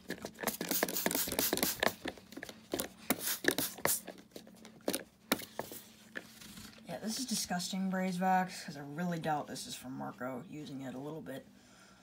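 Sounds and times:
spray bottle squirting: 0.2s - 2.0s, 3.1s - 4.1s.

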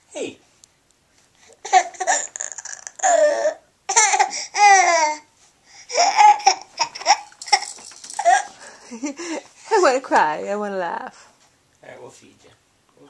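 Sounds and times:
laughter: 8.6s - 9.5s.

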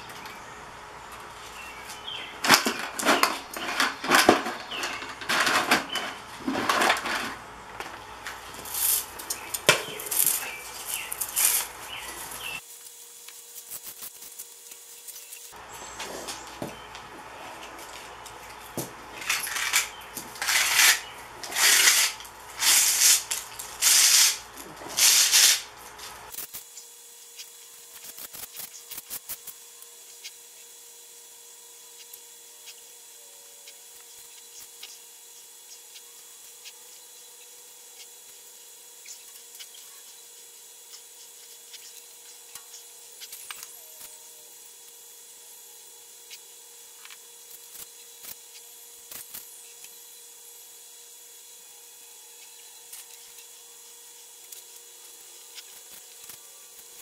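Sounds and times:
wire clicks and rustles: 2.4s - 15.5s, 16.3s - 26.7s
wire rasping scrapes: 19.2s - 26.4s.

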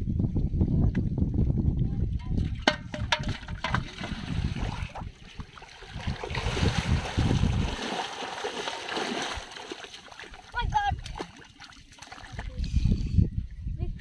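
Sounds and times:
muddy water splashing: 2.4s - 12.8s.

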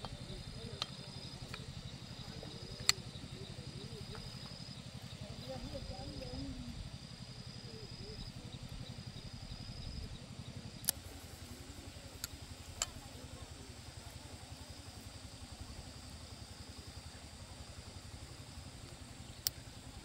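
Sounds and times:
small engine running: 0.0s - 20.0s.

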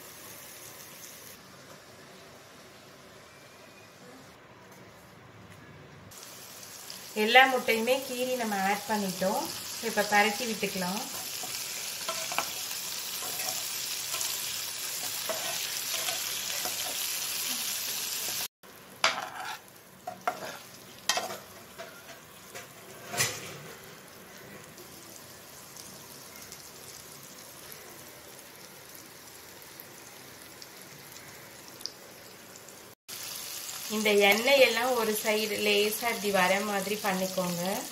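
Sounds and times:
eggs sizzling in oil: 0.0s - 3.5s, 6.1s - 37.9s
metal spatula scraping a pan: 11.1s - 14.4s, 15.0s - 17.0s, 19.0s - 23.9s.

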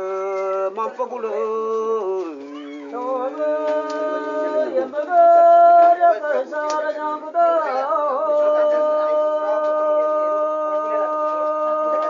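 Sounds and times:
voices chanting: 2.0s - 7.7s.

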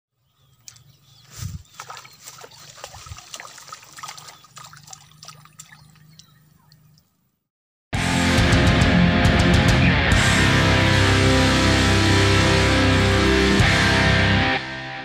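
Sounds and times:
fish splashing at water surface: 1.6s - 7.1s.

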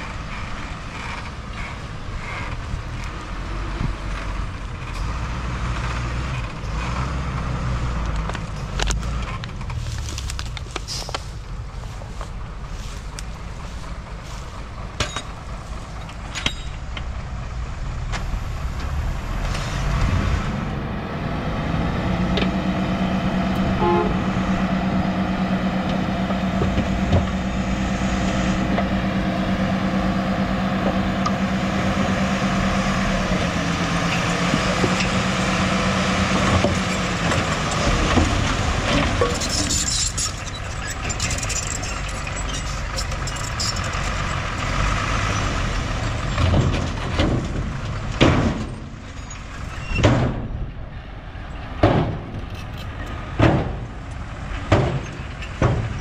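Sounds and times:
heavy machinery engine running: 0.0s - 56.0s
knocks and clanks: 15.0s - 17.2s, 25.8s - 27.6s, 34.0s - 44.4s, 46.0s - 50.6s, 51.7s - 56.0s.

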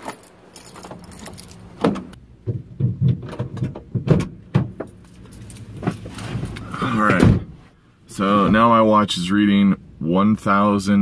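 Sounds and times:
keys jangling: 0.0s - 1.8s
knocks and thumps in car: 1.8s - 5.0s.

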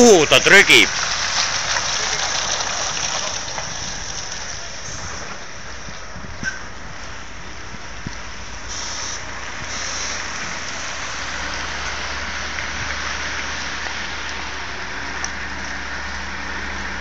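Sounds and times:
truck diesel engine rumbling: 0.0s - 17.0s
steady hiss: 8.6s - 10.4s.

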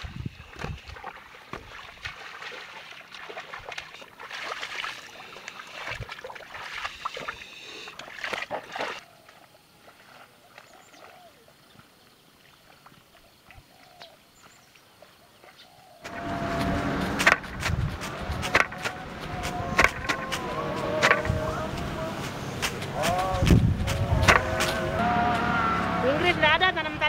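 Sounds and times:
splashing through mud and water: 0.0s - 27.0s
faint bird chirps: 6.6s - 16.0s.

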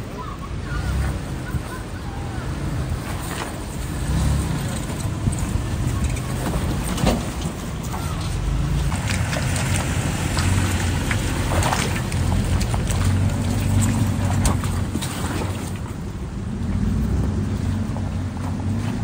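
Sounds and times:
engine running at low revs: 0.0s - 19.0s.

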